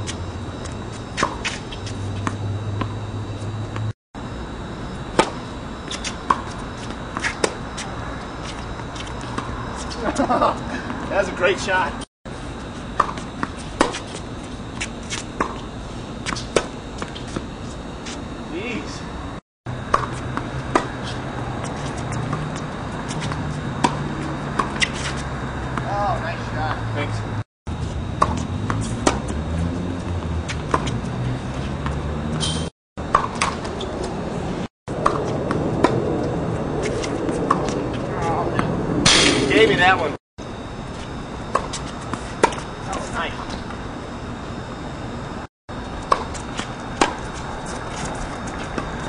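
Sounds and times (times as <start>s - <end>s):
tennis balls bouncing: 0.0s - 3.9s, 5.1s - 11.5s, 13.0s - 17.4s, 19.8s - 26.8s, 28.2s - 34.3s, 35.0s - 36.2s, 36.8s - 38.0s, 41.4s - 43.7s, 46.0s - 49.0s
steady low hum: 0.0s - 49.0s
footsteps on tennis court: 0.6s - 3.9s, 5.2s - 11.4s, 13.0s - 18.2s, 19.9s - 25.9s, 27.8s - 34.3s, 36.8s - 38.7s, 40.9s - 43.7s, 46.0s - 49.0s.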